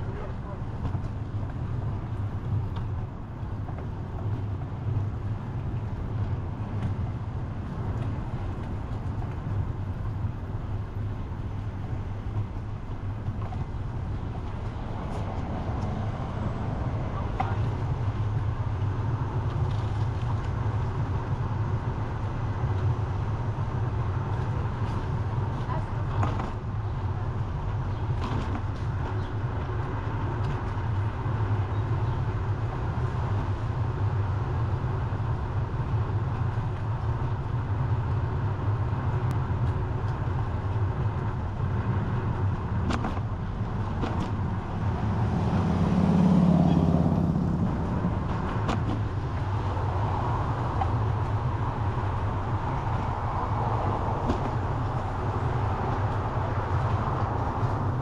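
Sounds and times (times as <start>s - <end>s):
road noise: 0.0s - 58.0s
wind noise on microphone: 0.0s - 58.0s
motor vehicle passing: 43.4s - 58.0s.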